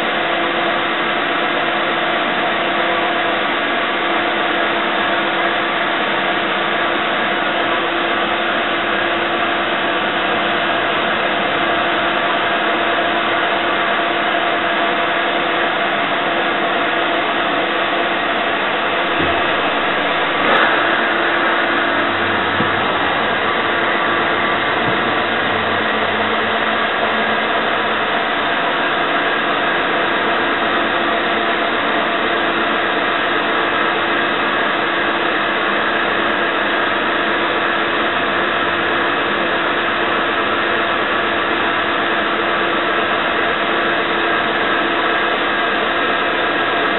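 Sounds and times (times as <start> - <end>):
milling machine whirring hum: 0.0 - 46.9
short knock: 19.0 - 26.6.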